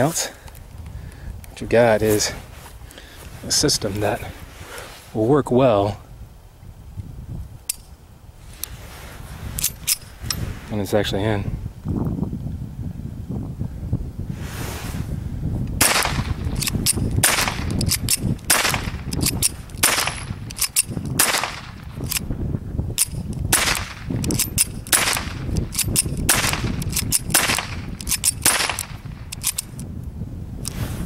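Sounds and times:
pistol slide racking clicks: 7.7s - 7.9s, 9.6s - 10.4s, 15.8s - 22.2s, 23.0s - 29.9s
pistol shots cracking: 15.8s - 21.9s, 23.5s - 29.6s.

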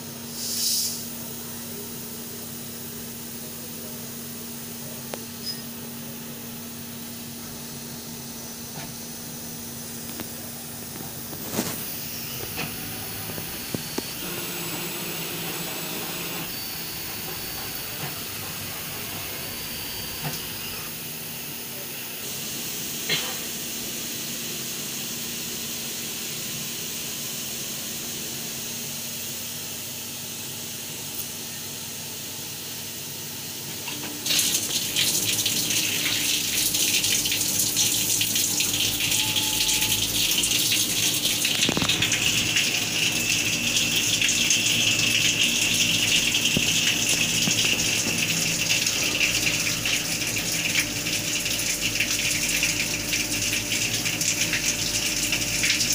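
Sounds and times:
milling machine humming: 1.0s - 55.9s
coolant gushing from nozzle: 7.6s - 23.2s, 33.9s - 55.9s.

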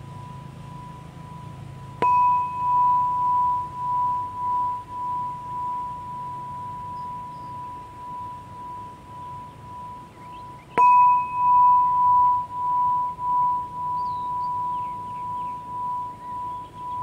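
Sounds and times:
metal tube chime ringing: 0.0s - 17.0s.

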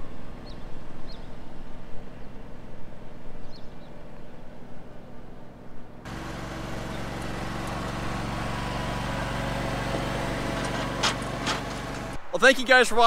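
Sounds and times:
lawn tractor engine running: 6.1s - 12.2s
distant mower: 6.1s - 12.3s.

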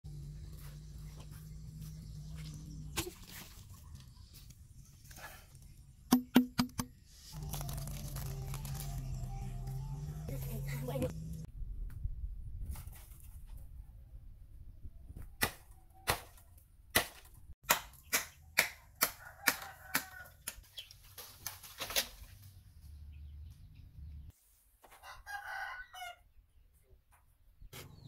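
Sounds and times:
blade chopping bamboo: 15.4s - 20.6s
rooster crowing: 19.2s - 20.4s, 25.0s - 26.2s.

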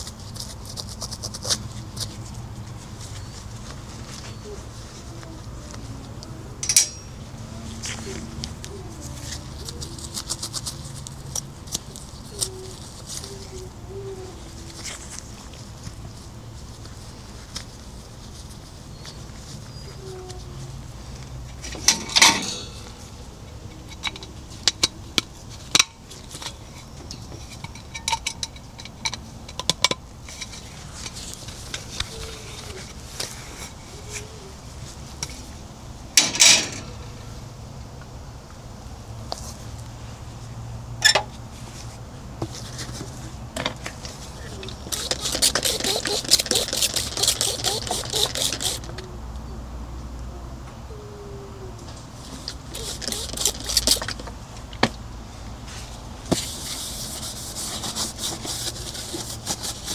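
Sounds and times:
scratchy scrubbing: 44.5s - 48.9s, 52.7s - 54.2s, 55.7s - 59.9s.

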